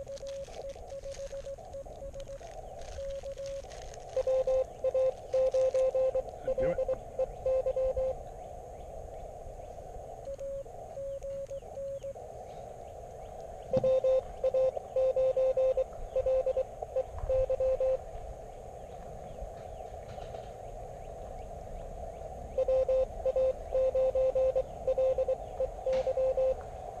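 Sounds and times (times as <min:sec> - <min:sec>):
morse code tone: 0:00.0 - 0:08.2, 0:10.3 - 0:12.2, 0:13.7 - 0:18.0, 0:22.5 - 0:26.6
radio band noise hiss: 0:00.0 - 0:27.0.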